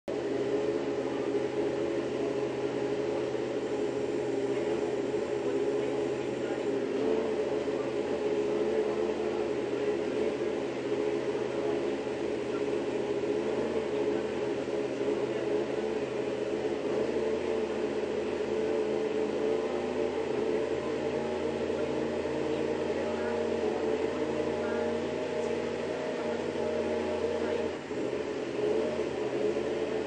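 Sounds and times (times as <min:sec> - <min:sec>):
machine hum: 0:00.1 - 0:30.0.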